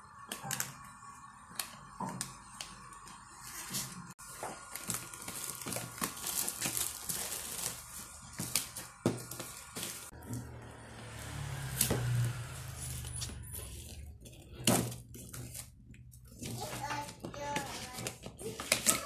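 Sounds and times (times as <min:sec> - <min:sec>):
plastic bag crinkling: 0:04.2 - 0:10.1.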